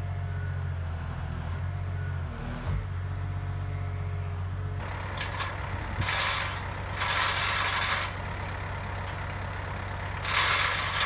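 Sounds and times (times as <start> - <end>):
diesel engine idling: 3.0 - 11.0.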